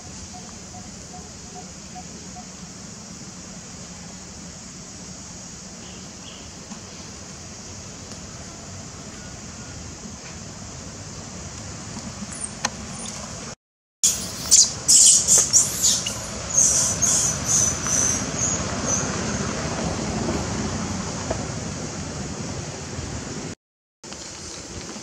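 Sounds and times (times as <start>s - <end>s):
high chirps: 0.0s - 2.6s, 14.0s - 19.0s
outdoor background hiss: 0.0s - 25.0s
high-pitched animal squeaks: 12.3s - 13.2s, 14.0s - 17.7s.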